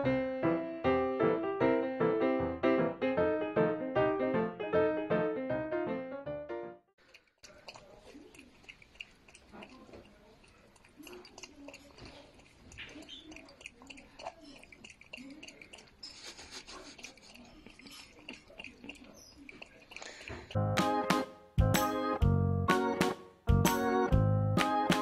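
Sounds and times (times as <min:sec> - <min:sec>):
animal lapping water: 0:07.0 - 0:20.6.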